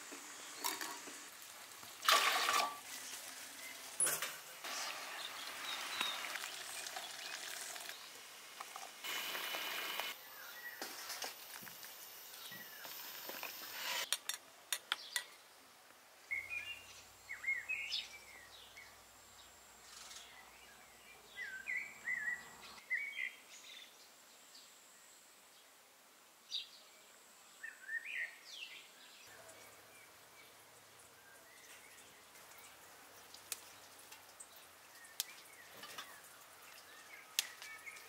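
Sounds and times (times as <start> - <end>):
songbird chirping: 3.0 - 8.2, 10.1 - 11.3, 14.0 - 25.8, 26.4 - 38.0.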